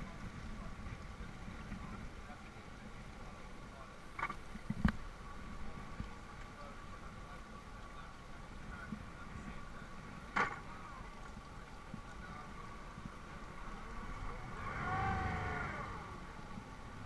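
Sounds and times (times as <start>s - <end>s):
drawn-out voice: 14.2s - 16.3s.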